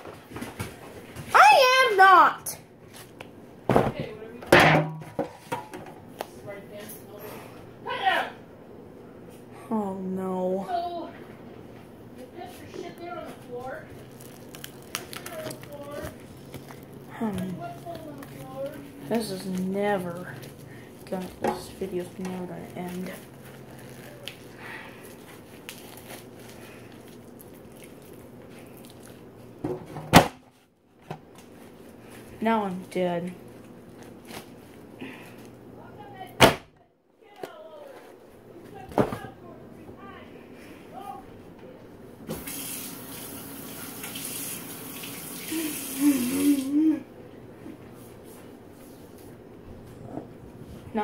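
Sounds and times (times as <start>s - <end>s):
foil crinkling: 13.8s - 21.4s, 22.0s - 29.2s
tap water running: 42.3s - 46.8s.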